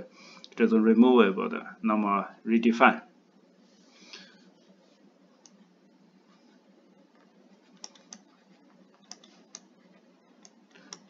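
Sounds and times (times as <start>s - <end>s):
background hiss: 0.0s - 11.0s
stylus tapping on screen: 7.2s - 9.7s.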